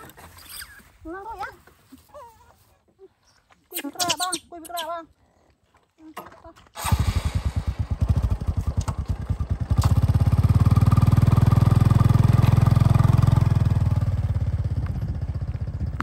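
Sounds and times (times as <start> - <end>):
motorcycle engine revving: 6.8 - 16.0.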